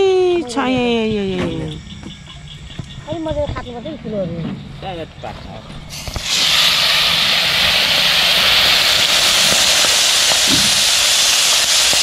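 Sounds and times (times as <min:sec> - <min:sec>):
fish sizzling in hot oil: 0:05.9 - 0:12.0.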